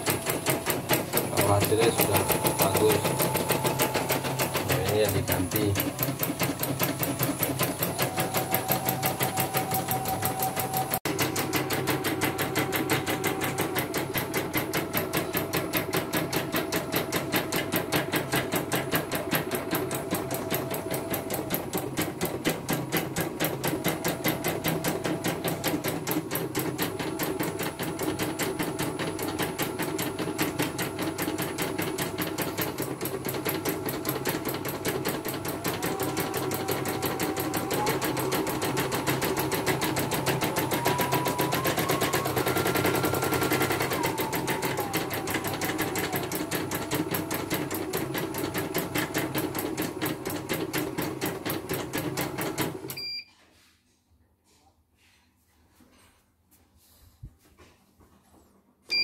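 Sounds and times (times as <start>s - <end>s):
motor whine: 35.4s - 48.8s.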